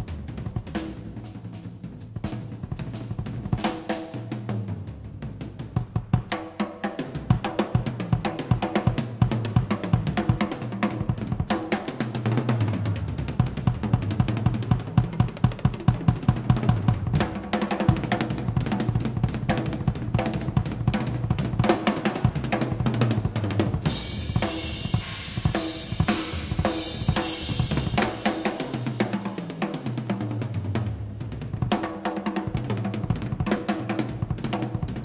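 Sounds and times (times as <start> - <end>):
fast drum kit playing: 0.0 - 35.0
crashing cymbals: 23.9 - 29.5.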